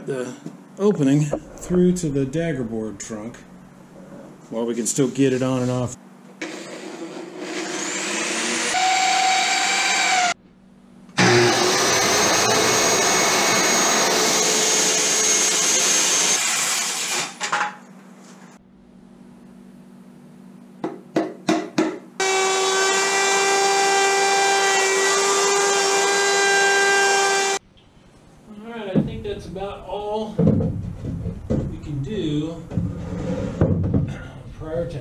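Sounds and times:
router cutting wood: 0:07.3 - 0:10.4, 0:11.2 - 0:17.4, 0:22.2 - 0:27.6.

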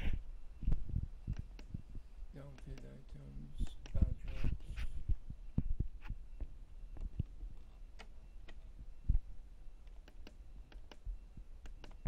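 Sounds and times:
push buttons clicking: 0:01.3 - 0:01.8, 0:09.8 - 0:11.0, 0:11.6 - 0:12.0.

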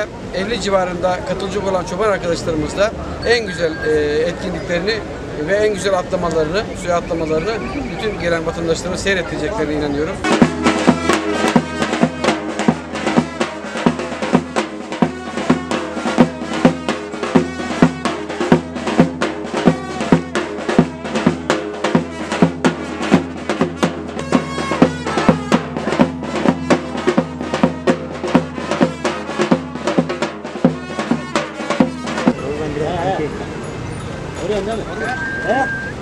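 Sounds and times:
held folk melody: 0:09.3 - 0:36.0
loud drum strokes: 0:10.1 - 0:32.9.

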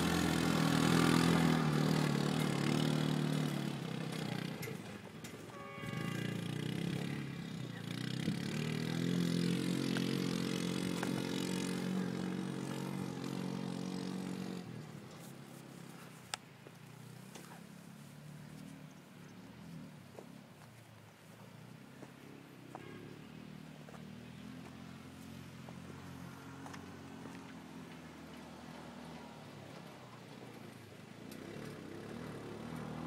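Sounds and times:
utility vehicle engine running: 0:00.0 - 0:20.4.

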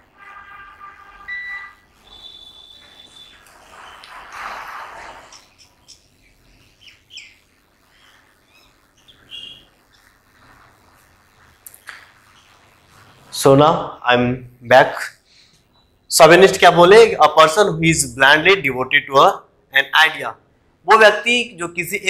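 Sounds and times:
birds chirping: 0:02.0 - 0:10.4.

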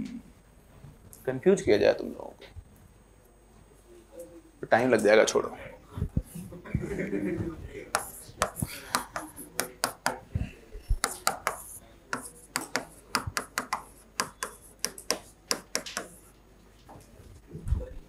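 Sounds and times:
chalk tapping on a chalkboard: 0:07.9 - 0:10.2, 0:10.9 - 0:16.2.

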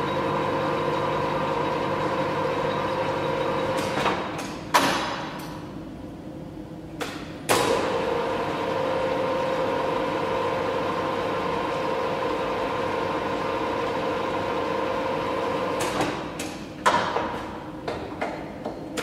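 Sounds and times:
lathe humming with whine: 0:00.0 - 0:03.8, 0:07.9 - 0:15.8.

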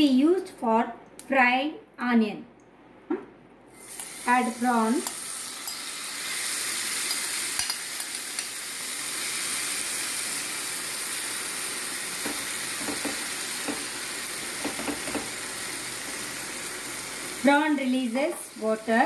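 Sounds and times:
prawns sizzling in hot oil: 0:03.7 - 0:19.0.

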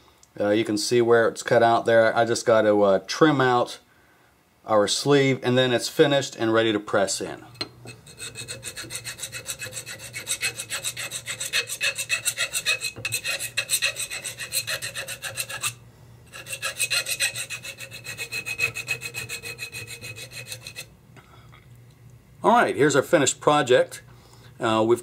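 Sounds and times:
hand file rasping on steel: 0:07.5 - 0:20.9.

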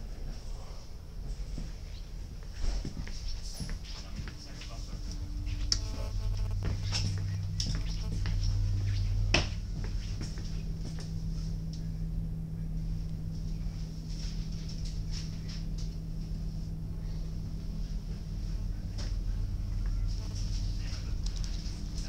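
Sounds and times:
footsteps: 0:01.3 - 0:11.7
idling diesel engine hum: 0:06.6 - 0:22.0.

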